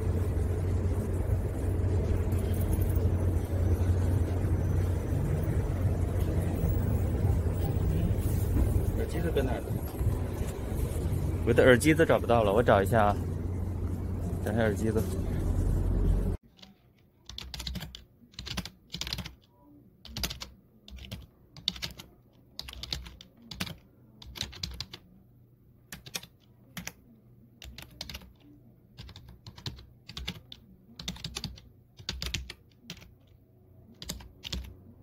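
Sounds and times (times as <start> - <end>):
typing on computer keyboard: 16.5 - 25.0, 25.9 - 27.0, 27.6 - 28.4, 29.0 - 34.7.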